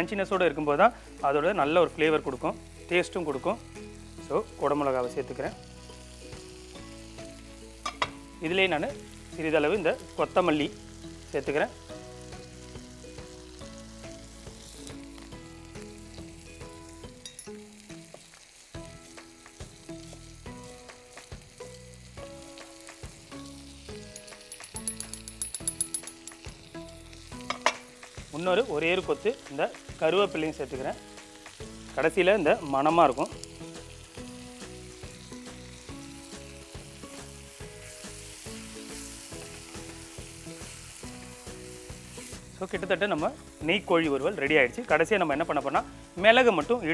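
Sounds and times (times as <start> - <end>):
food sizzling in a pan: 0.0 - 46.9
instrumental background music: 0.0 - 46.9
spoon stirring: 24.1 - 26.5.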